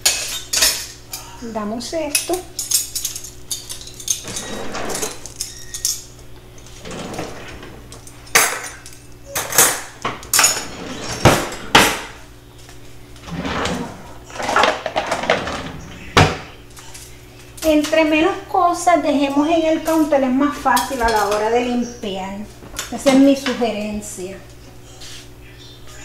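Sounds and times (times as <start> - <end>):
items sliding and shuffling: 6.6 - 8.2, 10.5 - 16.2.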